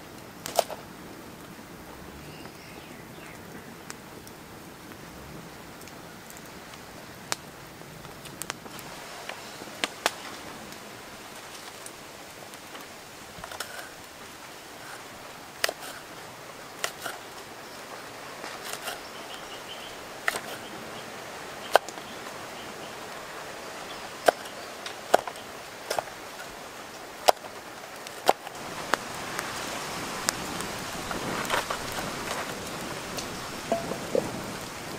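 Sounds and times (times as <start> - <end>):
steady hiss: 0.0 - 34.9
wood fire crackling: 0.0 - 34.9.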